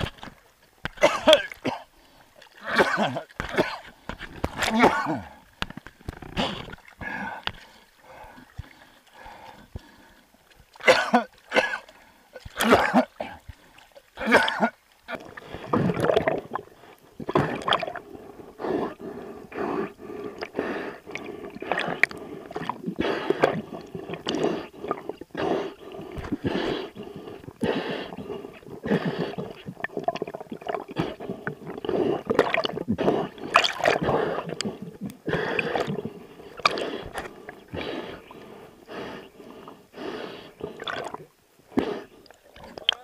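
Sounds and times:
water gurgling underwater: 14.1 - 19.0, 19.8 - 38.4, 40.6 - 43.0.

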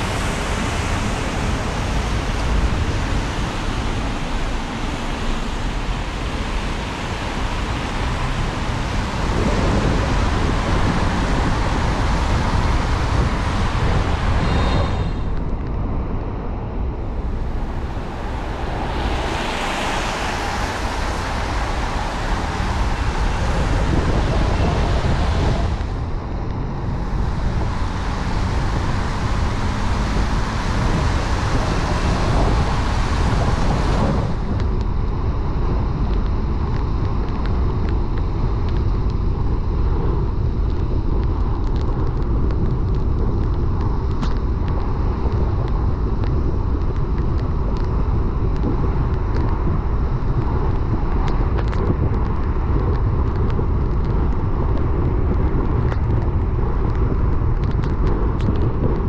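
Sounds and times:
tyre hiss on wet road: 0.0 - 15.4, 17.1 - 26.0
wind buffeting microphone: 0.0 - 59.0.

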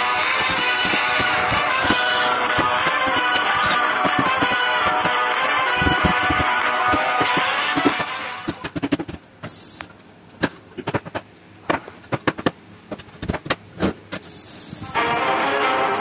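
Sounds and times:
background music: 0.0 - 8.7, 14.9 - 16.0.

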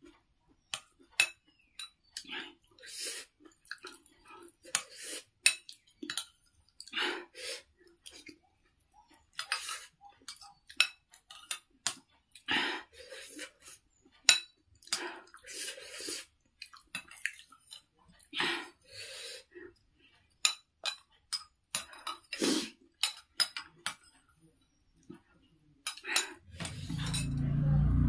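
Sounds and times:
chewing and eating mouth sounds: 0.1 - 7.0, 7.6 - 14.1, 14.7 - 18.8
cutlery clinking on ceramic bowl: 0.8 - 2.1, 5.4 - 6.4, 9.4 - 12.0, 14.2 - 15.0, 20.4 - 22.4, 23.0 - 24.3, 25.8 - 27.4.

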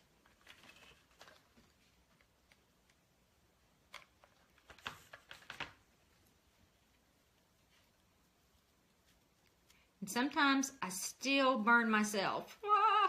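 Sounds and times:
soft rustles of ribbon: 0.0 - 3.0, 4.1 - 10.0.

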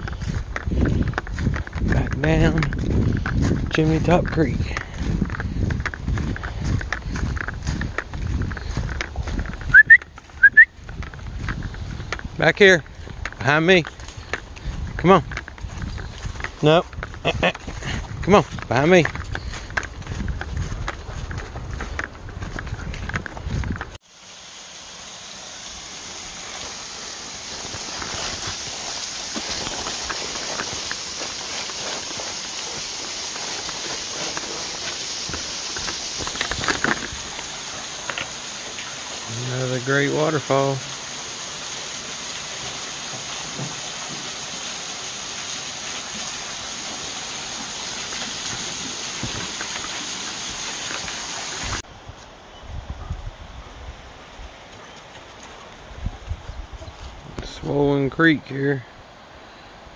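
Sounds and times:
footsteps in dry leaves: 0.0 - 40.2
waterfall splashing over rocks: 16.0 - 18.0, 24.0 - 51.8.

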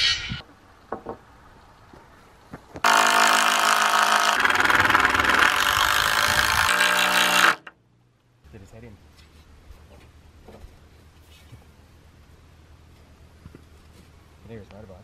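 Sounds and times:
cordless drill driving screw: 2.9 - 7.7.

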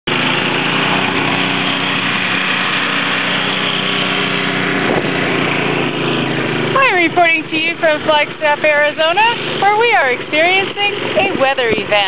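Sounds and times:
small engine running: 0.1 - 12.0.

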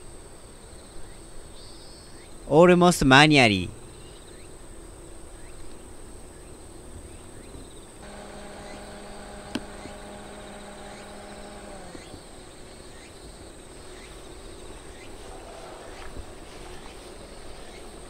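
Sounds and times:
insects chirring: 3.8 - 18.0
low engine hum: 8.0 - 18.0.

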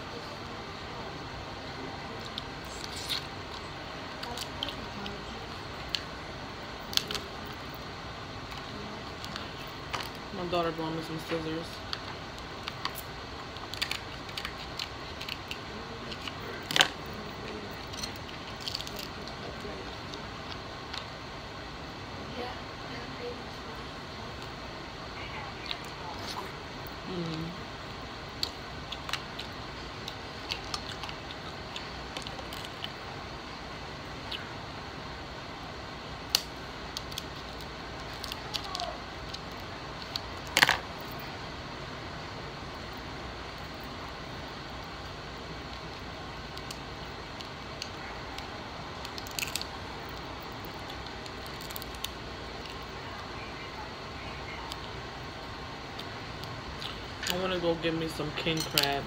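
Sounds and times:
steady background hiss: 0.0 - 59.0
crab shell cracking: 11.9 - 17.0, 17.8 - 19.4, 28.0 - 33.0, 36.2 - 41.2, 45.6 - 52.9
scissors snipping crab shell: 47.4 - 49.7.

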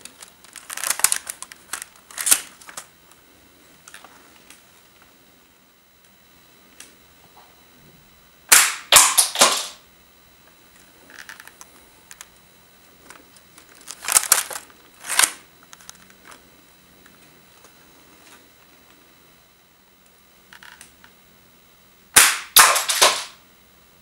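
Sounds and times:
plastic model rattling: 0.4 - 2.8
toy gun firing snap: 8.5 - 9.8, 22.2 - 23.4
plastic clattering: 22.6 - 23.4.

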